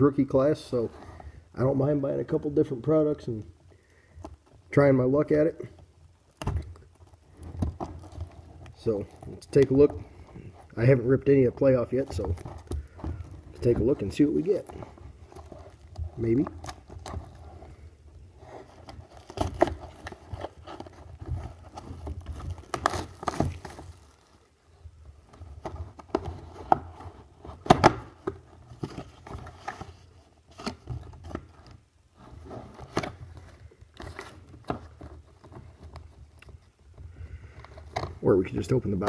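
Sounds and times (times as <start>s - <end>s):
cardboard packaging scraping and crinkling: 6.9s - 24.5s.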